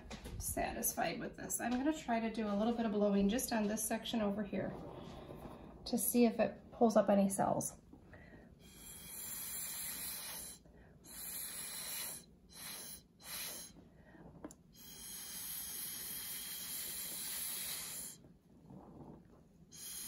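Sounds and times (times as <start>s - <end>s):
breath blown through a straw: 4.6s - 5.9s, 8.1s - 20.0s.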